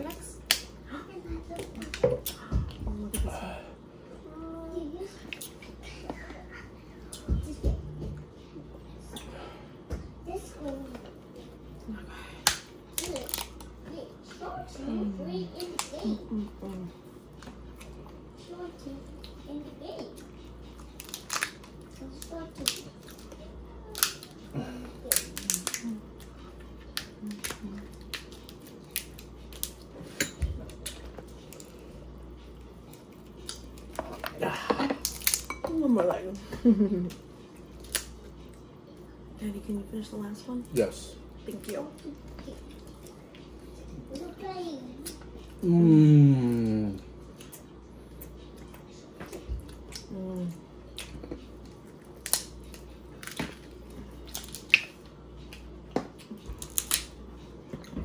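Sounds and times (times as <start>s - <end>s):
crab shells cracking: 21.0s - 23.3s, 23.9s - 24.4s, 25.1s - 25.9s, 33.4s - 35.5s, 37.8s - 38.2s, 52.2s - 53.6s, 54.2s - 55.0s, 56.6s - 57.2s.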